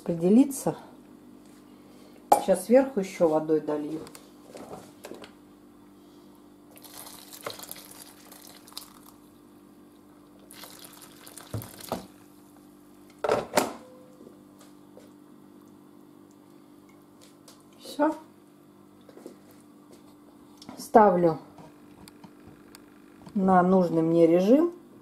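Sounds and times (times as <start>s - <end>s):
water pouring into liquid: 6.7s - 9.2s, 10.4s - 12.3s.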